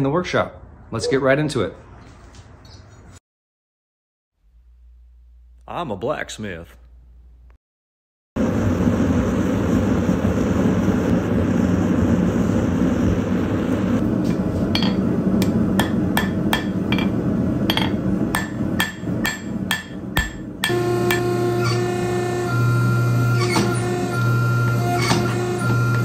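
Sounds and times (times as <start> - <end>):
hammer ringing on anvil: 14.8 - 21.8.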